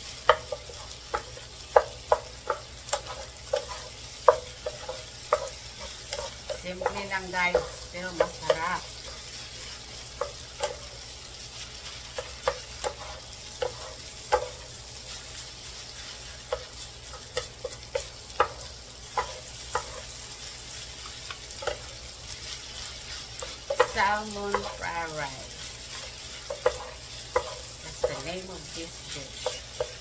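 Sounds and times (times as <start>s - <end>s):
frying sizzle: 0.0s - 30.0s
wooden spatulas scraping a pan: 2.9s - 8.8s, 21.2s - 30.0s.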